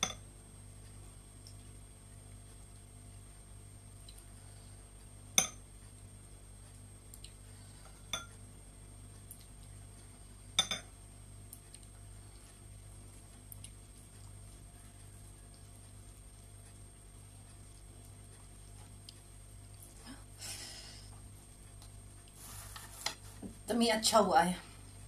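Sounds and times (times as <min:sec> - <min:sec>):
metal spoon clinking on glass bowl: 0:10.6 - 0:10.9.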